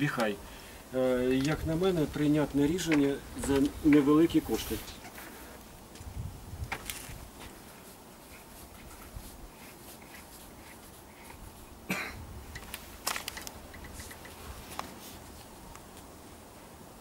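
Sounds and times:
person coughing: 11.9s - 12.2s
small ticks: 12.5s - 16.1s.

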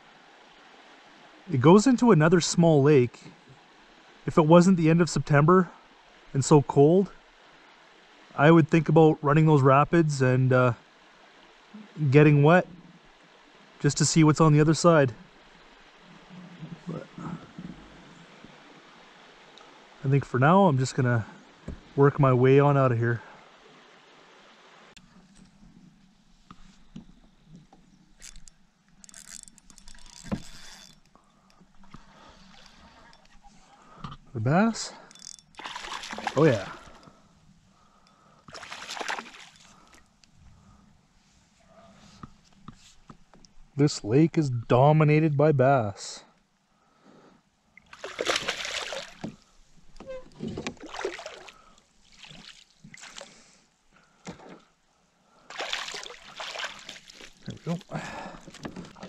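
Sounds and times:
water splashing and sloshing: 10.8s - 20.2s, 20.8s - 40.8s, 47.7s - 59.0s
gear clicks and rustles: 26.5s - 34.4s, 35.0s - 37.2s
fish thrashing at surface: 35.6s - 37.0s, 48.0s - 49.3s.

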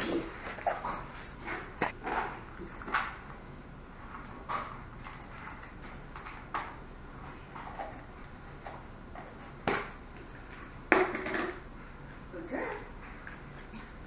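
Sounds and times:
bowl clattering on floor: 10.9s - 11.7s.

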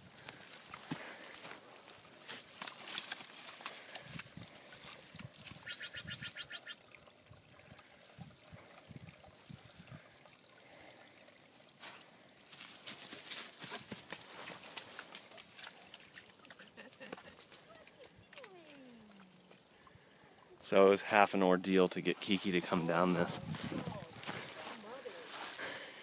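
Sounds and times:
small water splashes: 2.0s - 12.5s
rustling grass: 11.8s - 18.1s, 22.1s - 26.0s.

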